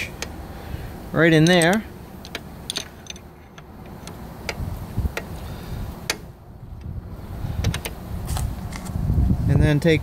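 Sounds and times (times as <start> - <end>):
wrench clicking against metal: 1.3 - 5.4.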